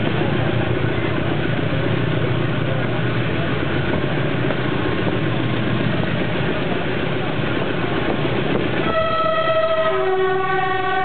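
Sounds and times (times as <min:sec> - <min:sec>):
locomotive diesel engine: 0:00.0 - 0:11.0
train wheels on rails: 0:00.0 - 0:11.0.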